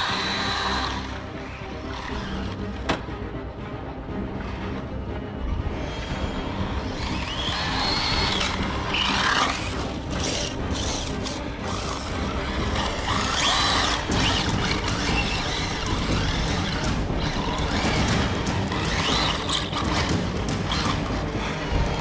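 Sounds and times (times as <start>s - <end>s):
rc car motor whining: 0.0s - 2.6s, 5.8s - 22.0s.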